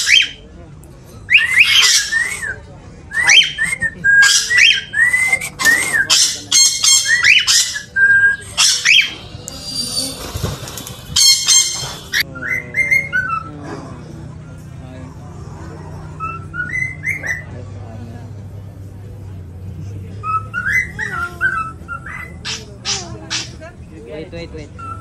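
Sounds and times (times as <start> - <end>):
cockatiel squawks: 1.3 - 2.4, 5.6 - 9.2
cockatiel chirping: 5.6 - 10.3, 11.1 - 12.2.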